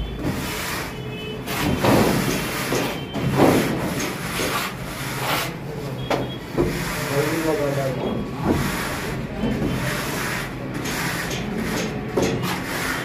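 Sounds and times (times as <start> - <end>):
straightedge scraping wet plaster: 0.3 - 5.6, 8.4 - 13.0.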